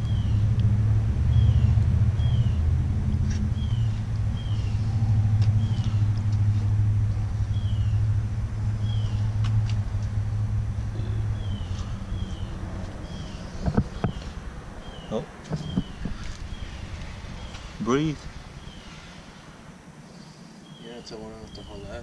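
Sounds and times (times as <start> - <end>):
bird chirping: 0.0 - 0.5, 1.3 - 6.2, 7.4 - 8.1, 8.7 - 9.4, 10.9 - 19.4, 20.1 - 22.0
low engine-like hum: 0.0 - 22.0.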